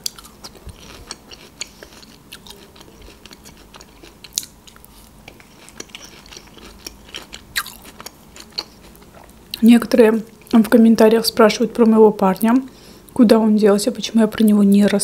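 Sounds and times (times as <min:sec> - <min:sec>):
chewing: 0:00.0 - 0:09.6.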